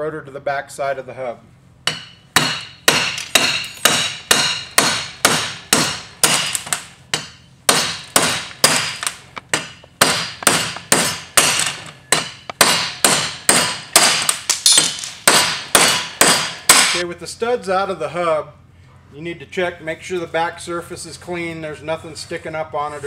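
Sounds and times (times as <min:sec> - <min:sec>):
hammer striking metal: 0:01.8 - 0:17.0.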